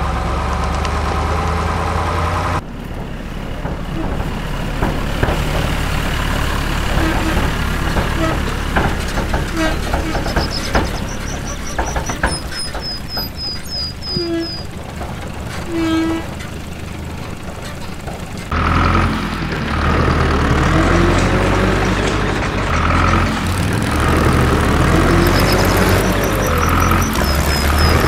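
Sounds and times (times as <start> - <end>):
truck engine: 0.0 - 28.0.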